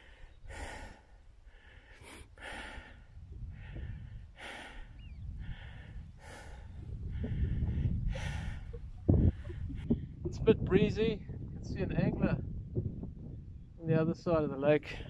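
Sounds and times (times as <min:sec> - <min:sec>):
man breathing hard: 0:00.0 - 0:10.2
wind rumble on microphone: 0:02.4 - 0:15.0.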